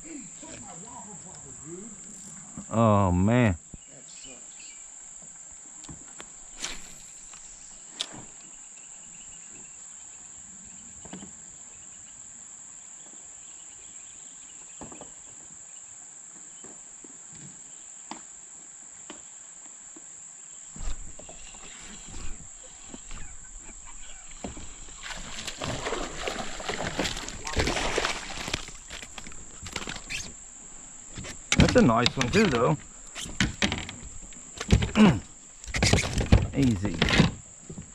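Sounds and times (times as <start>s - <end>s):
fish splashing at water surface: 24.3s - 30.0s.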